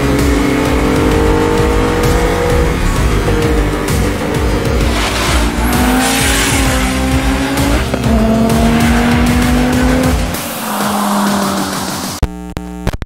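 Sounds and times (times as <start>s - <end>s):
background music: 0.0s - 12.2s
car engine running hard: 0.0s - 12.2s
tyres squealing: 0.3s - 12.2s
rising squeal-like tones: 1.1s - 8.0s, 8.6s - 12.2s.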